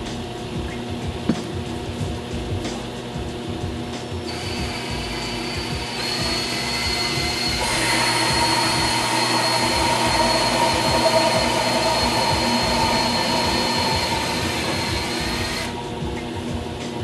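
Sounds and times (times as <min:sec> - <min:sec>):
lathe cutting hiss: 0:04.2 - 0:17.0
lathe motor whine: 0:04.2 - 0:17.0.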